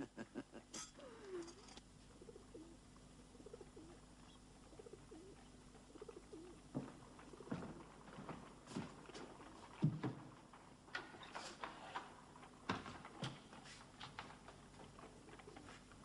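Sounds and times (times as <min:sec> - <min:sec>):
pigeons cooing: 0:01.0 - 0:08.2, 0:15.1 - 0:16.0.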